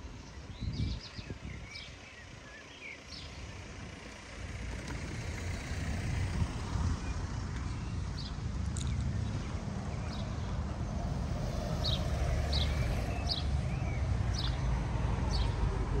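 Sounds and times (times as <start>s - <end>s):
distant road traffic rumble: 0.0s - 16.0s
bird chirps: 9.9s - 15.9s.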